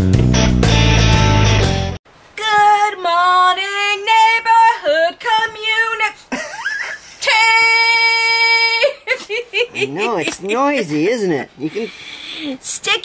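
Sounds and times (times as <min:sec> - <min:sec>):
guitar music: 0:00.0 - 0:02.0
woman singing unaccompanied: 0:02.4 - 0:06.3, 0:07.2 - 0:09.1.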